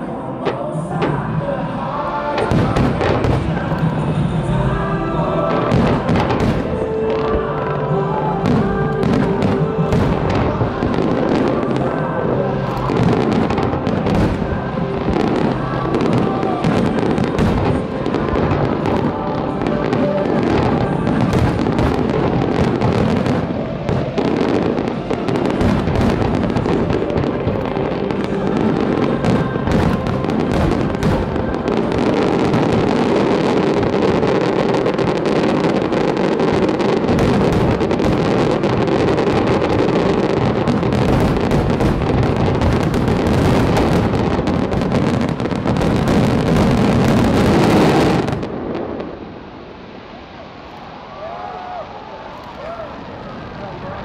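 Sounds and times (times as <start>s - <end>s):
music playing: 0.0s - 49.0s
fireworks bursting and crackling: 0.0s - 54.0s.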